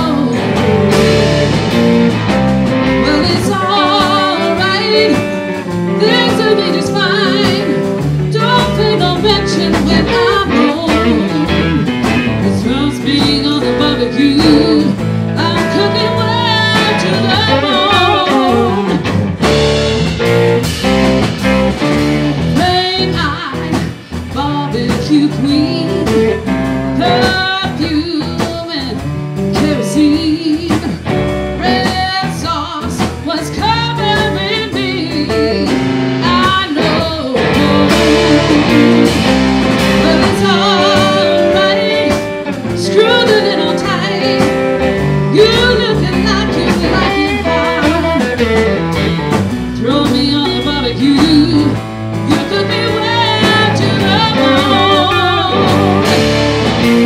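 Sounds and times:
woman singing with vibrato: 0:00.0 - 0:01.2, 0:02.9 - 0:11.7, 0:12.4 - 0:19.2, 0:22.6 - 0:56.2
bass guitar: 0:00.0 - 0:57.0
drum kit: 0:00.0 - 0:57.0
electric guitar: 0:00.0 - 0:57.0.

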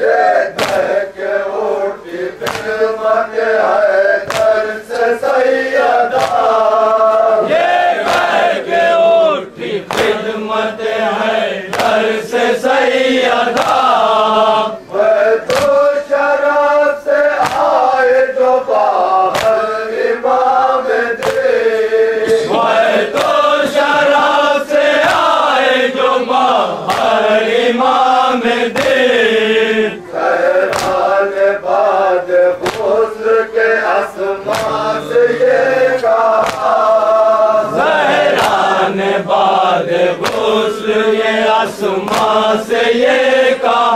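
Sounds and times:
men chanting a lament: 0:00.0 - 0:43.9
chest-beating slaps: 0:00.5 - 0:01.0, 0:02.1 - 0:03.0, 0:04.2 - 0:05.4, 0:06.1 - 0:07.3, 0:08.0 - 0:08.6, 0:09.8 - 0:10.3, 0:11.7 - 0:12.2, 0:13.5 - 0:14.3, 0:15.4 - 0:16.0, 0:17.3 - 0:17.9, 0:19.3 - 0:19.7, 0:21.2 - 0:23.8, 0:24.9 - 0:25.6, 0:26.7 - 0:27.4, 0:28.6 - 0:29.2, 0:30.6 - 0:31.2, 0:32.5 - 0:33.2, 0:34.4 - 0:35.2, 0:35.8 - 0:37.0, 0:37.7 - 0:38.8, 0:39.9 - 0:40.8, 0:41.9 - 0:42.5.

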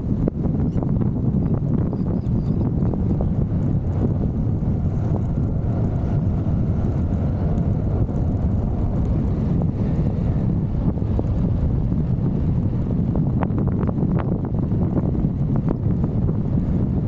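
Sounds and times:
wind on microphone: 0:00.0 - 0:17.0
scooter engine droning: 0:02.8 - 0:17.0.

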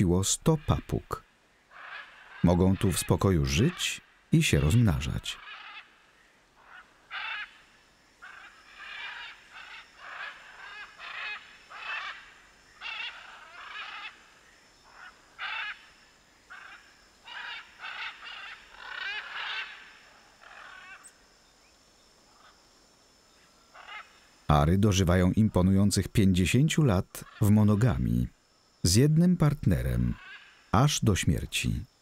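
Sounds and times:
macaws squawking: 0:01.7 - 0:06.0, 0:06.6 - 0:14.3, 0:14.9 - 0:15.9, 0:16.5 - 0:21.1, 0:23.8 - 0:24.1, 0:29.9 - 0:30.6.

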